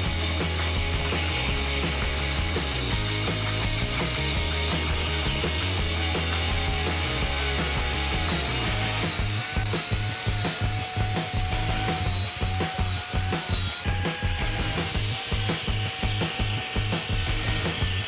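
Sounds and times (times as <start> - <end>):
angle grinder cutting wood: 0.0 - 18.0.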